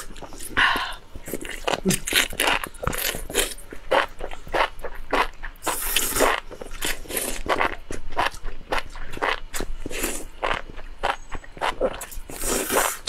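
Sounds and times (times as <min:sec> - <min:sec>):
chewing and wet smacks: 0:01.2 - 0:13.0
person slurping noodles: 0:05.6 - 0:07.7, 0:11.8 - 0:13.0.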